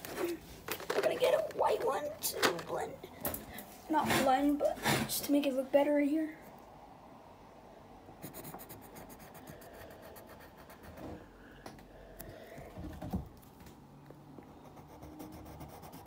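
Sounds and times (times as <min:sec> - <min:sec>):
pencil scratching on paper: 0:08.2 - 0:11.2, 0:14.6 - 0:16.0.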